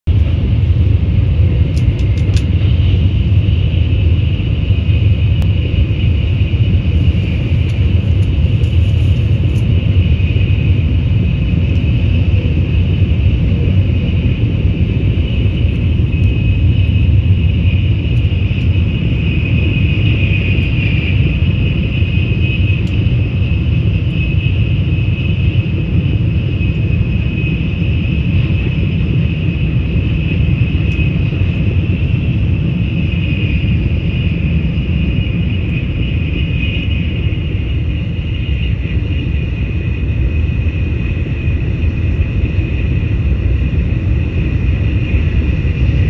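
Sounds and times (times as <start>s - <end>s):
train cabin rumble and hiss: 1.5s - 23.4s.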